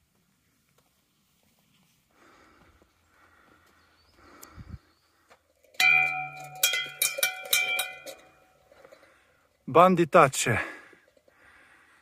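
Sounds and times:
faint rustling footsteps: 0.1s - 7.0s
metal bell clanging: 5.6s - 8.7s.

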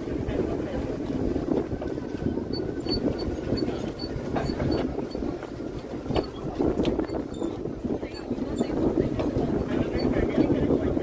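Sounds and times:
wind rushing over microphone: 0.0s - 11.0s.

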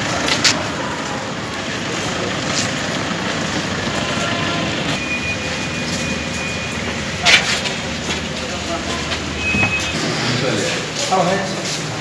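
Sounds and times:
traffic rumble and hiss: 0.0s - 12.0s.

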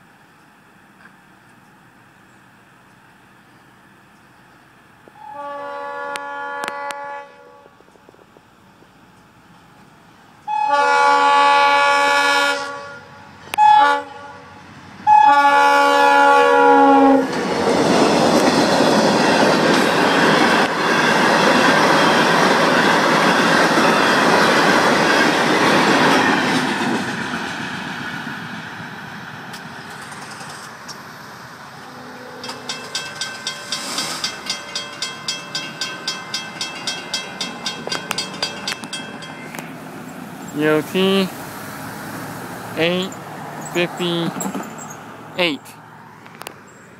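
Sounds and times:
locomotive engine and wheel noise: 0.0s - 12.2s, 12.8s - 46.9s
locomotive horn: 5.2s - 7.8s, 10.4s - 17.3s, 31.8s - 32.6s
rail cars clattering over joints: 17.2s - 28.0s, 29.5s - 31.0s, 32.4s - 40.6s, 43.1s - 45.0s
crossing bell ringing rapidly: 32.4s - 40.9s.

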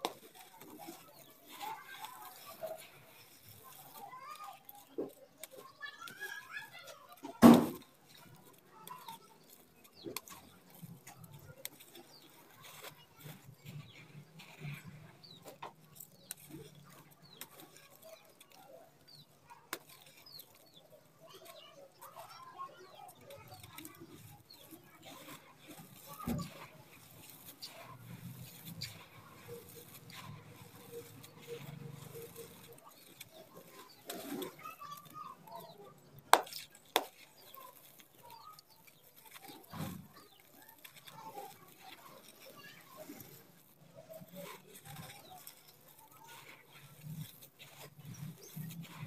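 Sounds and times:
sharp crackles: 0.0s - 49.0s
dirt crumbling in hands: 22.2s - 42.3s.

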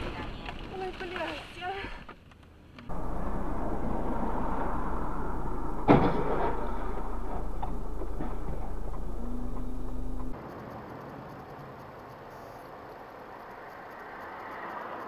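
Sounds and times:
sudden loud thump: 2.9s - 10.4s
car road and engine noise: 2.9s - 15.0s.

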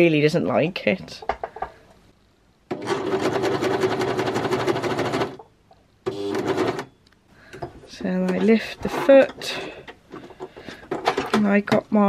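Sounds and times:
sewing machine stitching: 2.7s - 5.4s, 6.1s - 6.9s.

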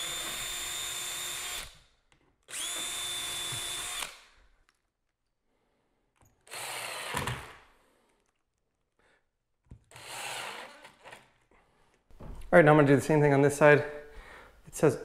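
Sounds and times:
cordless drill whining: 0.0s - 1.8s, 2.5s - 4.4s, 6.4s - 7.6s, 9.9s - 11.2s.

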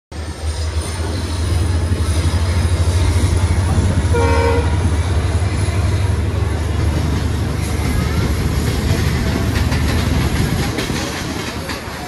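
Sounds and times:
moving train rumble: 0.1s - 12.0s
train horn toot: 2.9s - 5.1s.

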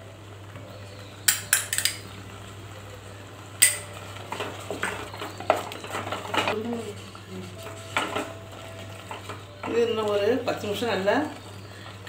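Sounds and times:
wooden spatula scraping pot: 3.9s - 12.0s.

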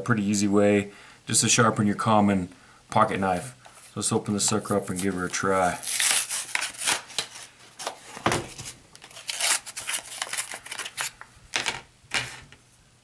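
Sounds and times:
plastic packaging being torn open: 5.6s - 11.3s.

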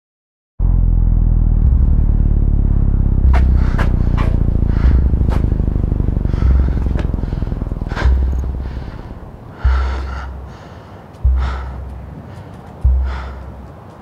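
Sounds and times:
deep low pulse: 0.6s - 12.2s, 12.8s - 13.7s
man breathing heavily: 3.4s - 14.0s.

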